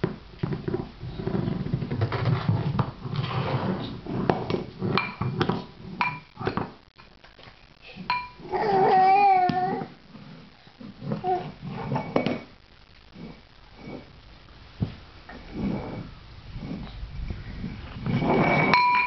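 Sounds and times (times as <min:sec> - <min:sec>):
bowls scraping on hard floor: 0:00.0 - 0:06.8, 0:08.0 - 0:14.2, 0:15.3 - 0:19.0
ceramic bowls clinking: 0:08.1 - 0:08.4, 0:18.1 - 0:19.0.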